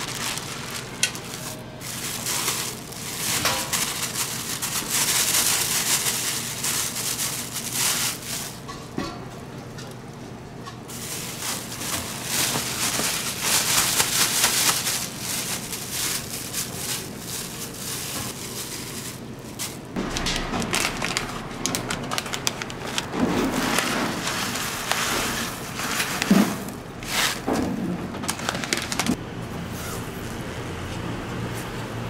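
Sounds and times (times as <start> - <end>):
vegetables rustling in mesh bag: 0.0 - 8.8, 10.9 - 27.6.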